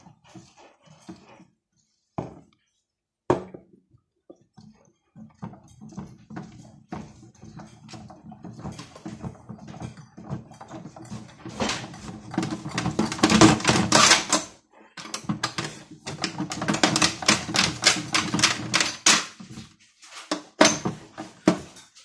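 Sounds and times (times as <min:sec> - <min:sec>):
drum tumbling with clicking rattle: 0:04.3 - 0:22.0.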